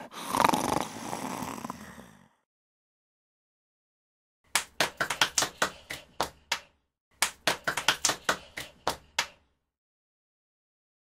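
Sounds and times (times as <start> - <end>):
hands clapping: 4.5 - 9.5.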